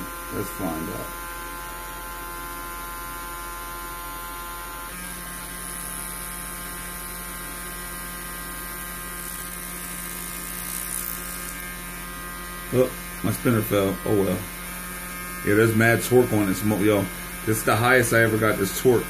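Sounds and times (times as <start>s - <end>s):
electrical hum and whine: 0.0s - 19.0s.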